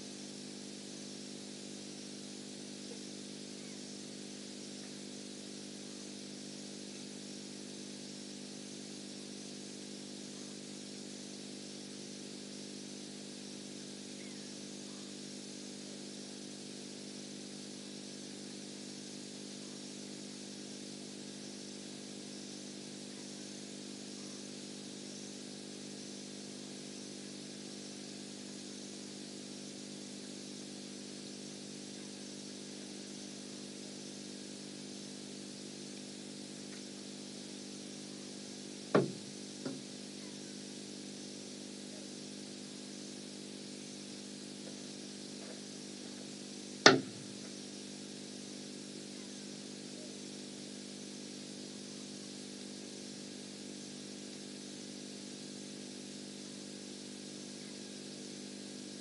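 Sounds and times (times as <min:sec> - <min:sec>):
hiss: 0:00.0 - 0:59.0
steady low hum: 0:02.2 - 0:16.5, 0:43.7 - 0:47.8
sharp knocks: 0:39.0 - 0:39.8, 0:46.9 - 0:47.2.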